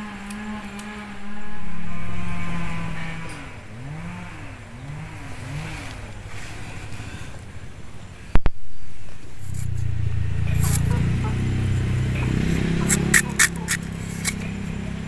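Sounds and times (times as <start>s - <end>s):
steady low hum: 0.0s - 15.0s
blade scraping yam skin: 12.2s - 14.9s.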